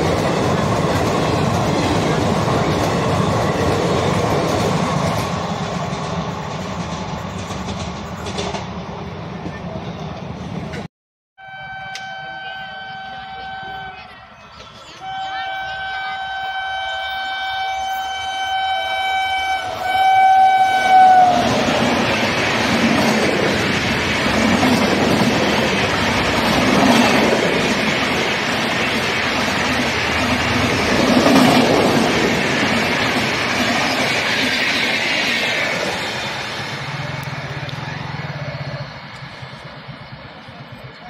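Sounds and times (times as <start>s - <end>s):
train wheels clattering: 0.0s - 9.6s, 21.4s - 37.8s
train horn blasts: 11.4s - 14.2s, 15.0s - 21.7s.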